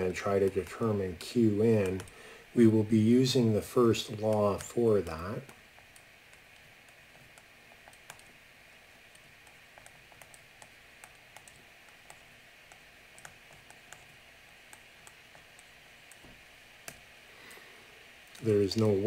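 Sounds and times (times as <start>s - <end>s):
low steady hiss: 0.0s - 19.0s
stylus tapping on tablet screen: 5.4s - 17.1s.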